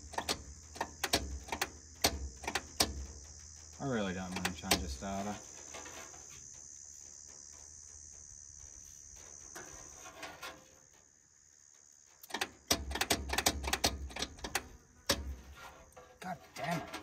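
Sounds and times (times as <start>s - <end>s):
starter motor clacking and clunking: 0.0s - 5.8s, 12.2s - 17.0s
steady high hiss: 0.0s - 16.8s.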